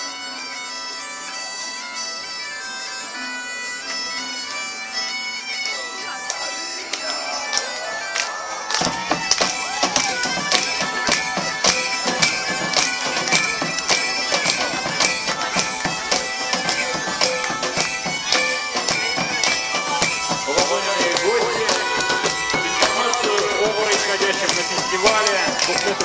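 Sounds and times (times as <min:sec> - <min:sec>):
bagpipes playing folk tune: 0:00.0 - 0:26.0
drum beat: 0:08.8 - 0:26.0.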